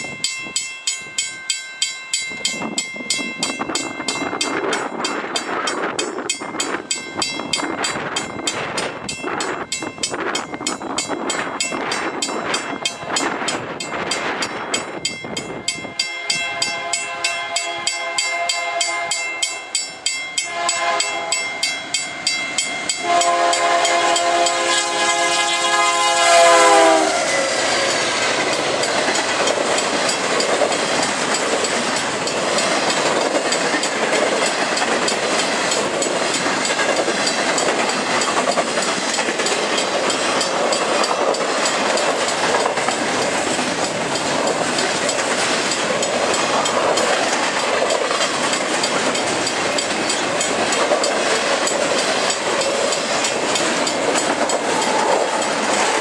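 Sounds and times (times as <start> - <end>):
railroad crossing bell ringing: 0.0 - 56.0
train wheels clattering on rail: 2.2 - 56.0
locomotive horn: 16.1 - 19.4, 20.5 - 21.5, 23.0 - 28.1.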